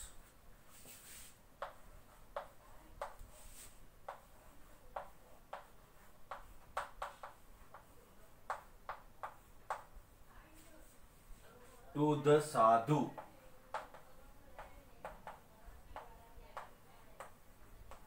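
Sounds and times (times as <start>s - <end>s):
chalk tapping on chalkboard: 0.8s - 10.7s, 13.1s - 18.0s.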